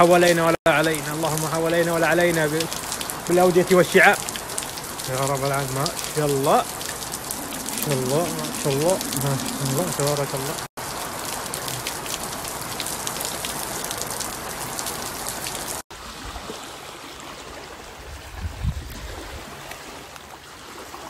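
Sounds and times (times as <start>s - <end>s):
heavy rain on tiles: 0.0s - 15.8s
floodwater rushing: 0.0s - 21.0s.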